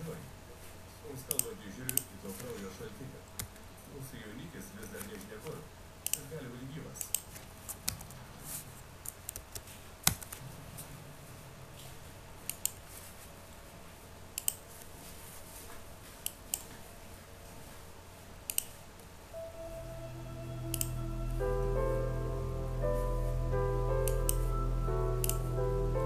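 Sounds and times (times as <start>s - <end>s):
mouse and keyboard clicks: 9.1s - 10.4s, 14.4s - 14.6s, 18.5s - 18.8s
film music: 19.4s - 26.0s.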